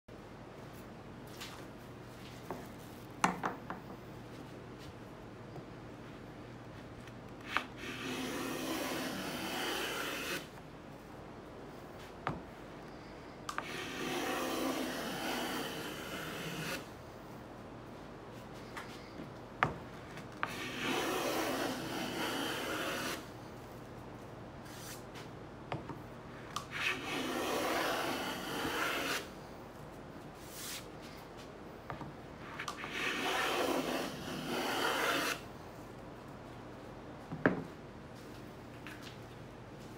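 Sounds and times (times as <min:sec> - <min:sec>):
hand plane shaving wood: 0:07.5 - 0:10.5, 0:13.6 - 0:16.9, 0:20.4 - 0:23.2, 0:26.7 - 0:29.3, 0:32.6 - 0:35.4.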